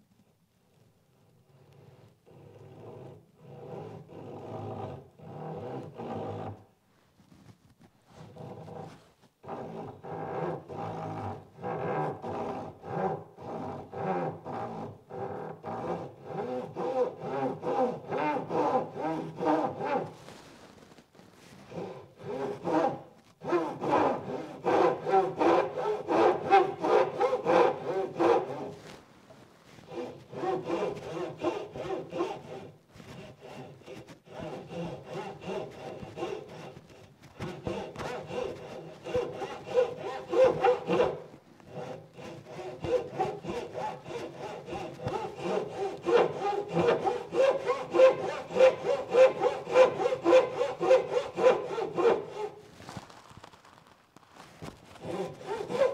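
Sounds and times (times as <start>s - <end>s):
pull saw cutting wood: 1.9s - 6.6s, 8.2s - 20.4s, 21.7s - 29.0s, 29.7s - 52.8s, 54.9s - 55.9s.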